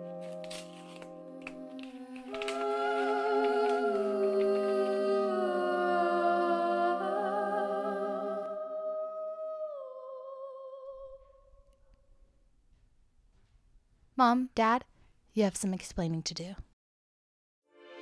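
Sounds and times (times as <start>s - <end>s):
wordless choir humming: 1.0s - 11.2s.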